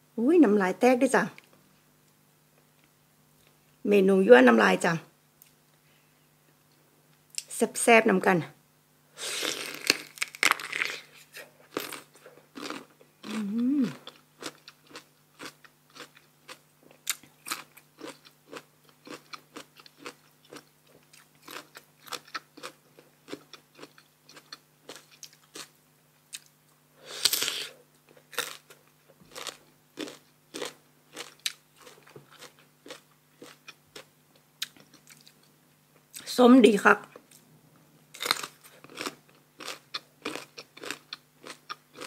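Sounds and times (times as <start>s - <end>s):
crunching bite of mango: 9.2s - 25.7s, 38.1s - 42.0s
crisp chewing: 9.5s - 25.7s.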